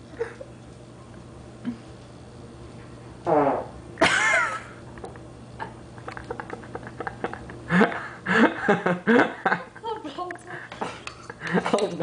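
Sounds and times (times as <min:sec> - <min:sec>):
woman laughing: 0:00.1 - 0:00.5, 0:04.0 - 0:04.7, 0:05.6 - 0:11.9.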